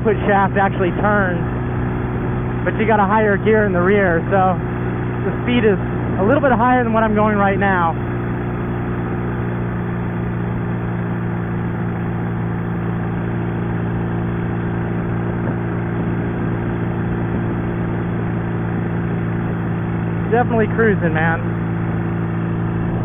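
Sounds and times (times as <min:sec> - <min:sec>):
motorcycle engine droning: 0:00.0 - 0:23.0.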